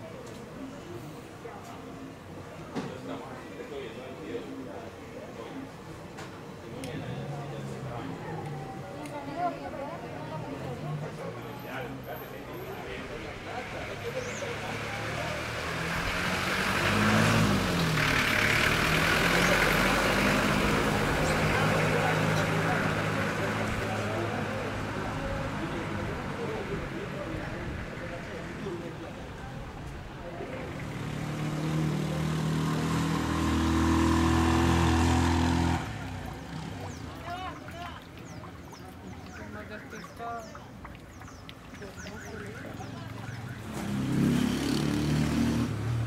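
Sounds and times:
street ambience: 0.0 - 46.0
vehicle engine running: 13.1 - 28.6.

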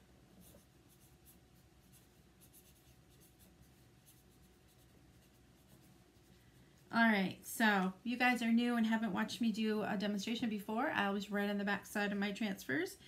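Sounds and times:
marker scratching on paper: 0.4 - 6.4.

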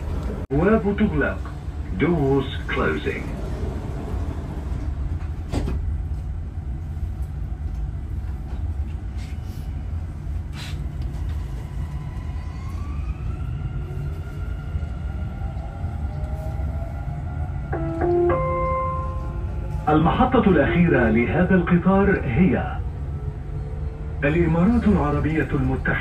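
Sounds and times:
train rumbling: 0.0 - 26.0
electronic announcement chime: 17.8 - 20.1.

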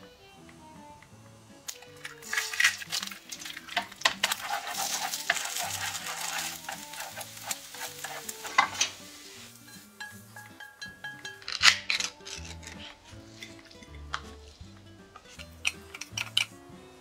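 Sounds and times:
egg sizzling in frying pan: 1.6 - 14.6
chopsticks tapping and scraping pan: 1.7 - 16.6.

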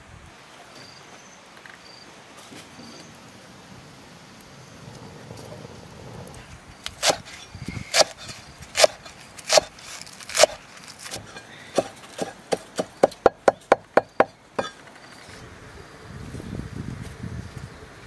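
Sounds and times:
blade chopping on wooden board: 6.9 - 14.7.

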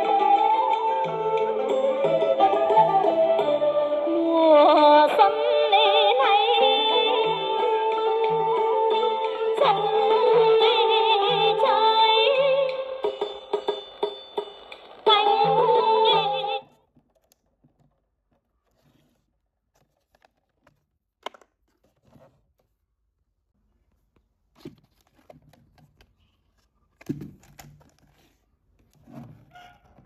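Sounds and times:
clicks and knocks of handling: 16.9 - 18.8, 19.7 - 22.7.

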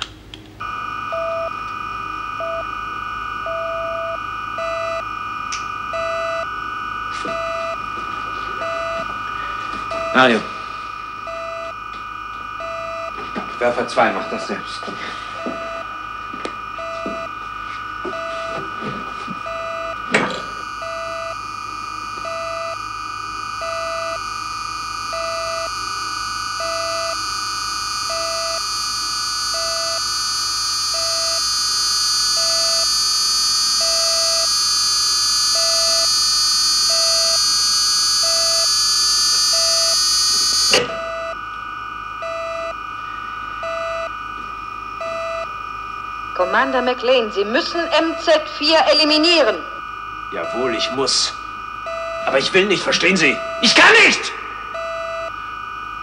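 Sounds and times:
rising electronic whine: 0.0 - 56.0
steady electronic hum: 0.0 - 56.0
short electronic beeps: 9.9 - 10.4.

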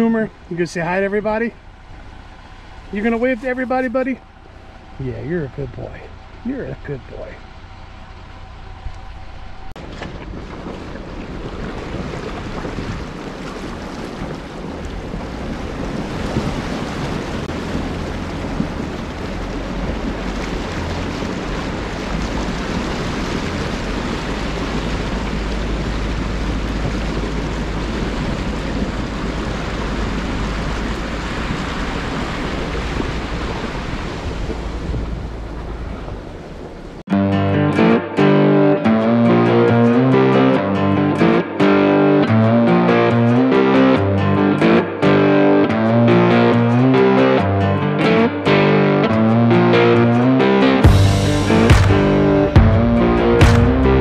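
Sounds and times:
low hum: 0.0 - 11.5, 14.4 - 54.0
wind and tyres rushing: 0.0 - 37.1.

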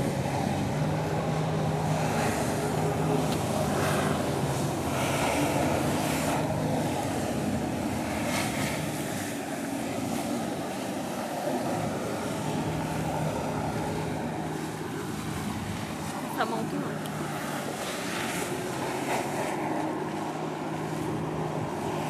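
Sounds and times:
boat engines humming: 0.0 - 22.0
water spray hissing: 1.8 - 10.8.

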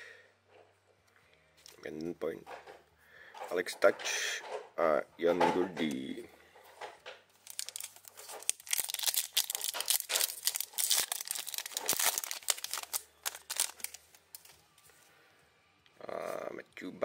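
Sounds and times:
foil wrapper crinkling: 7.4 - 14.5.

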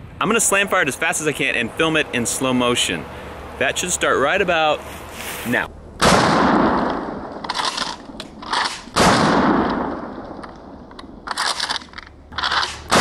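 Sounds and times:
shotgun blasts: 6.0 - 10.3, 12.4 - 13.0
shotgun slide clacking: 10.4 - 13.0.

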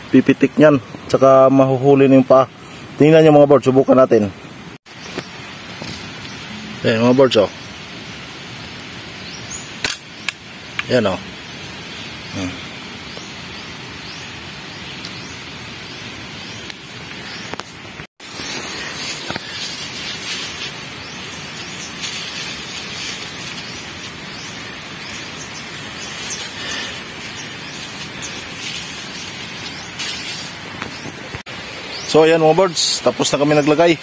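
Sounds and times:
steady outdoor hiss: 0.0 - 34.0
dry straw rustling and crackling: 10.7 - 31.4.

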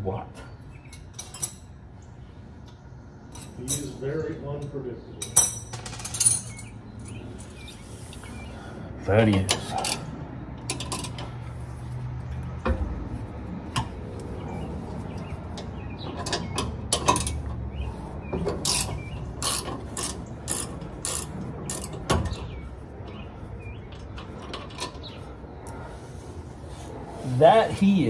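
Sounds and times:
metal clinks: 5.2 - 7.5
ratchet wrench clicking: 18.6 - 21.9.

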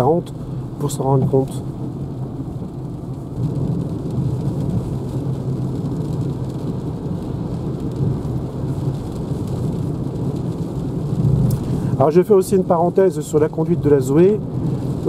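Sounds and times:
rain on car body: 0.0 - 15.0
tyres rumbling on wet road: 0.0 - 15.0.

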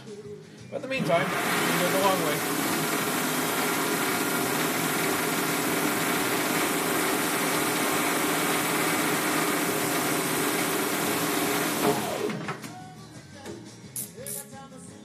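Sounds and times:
metal lathe running: 1.0 - 12.4.

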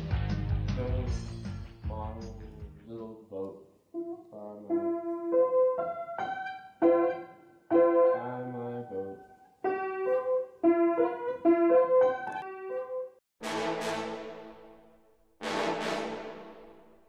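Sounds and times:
upright piano playing: 4.0 - 17.0.

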